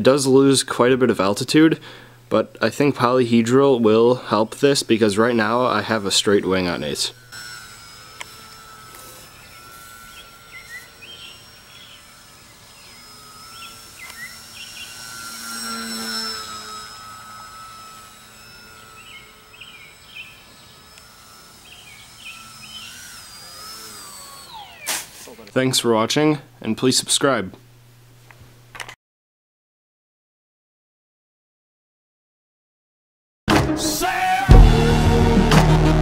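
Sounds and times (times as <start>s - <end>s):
birds chirping: 3.5s - 25.5s
model plane motor whine: 3.7s - 25.5s.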